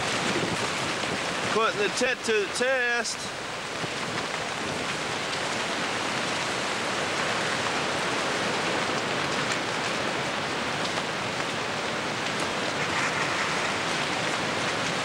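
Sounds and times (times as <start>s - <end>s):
heavy rain on a tent: 0.0s - 15.0s
raindrop hits: 3.6s - 15.0s.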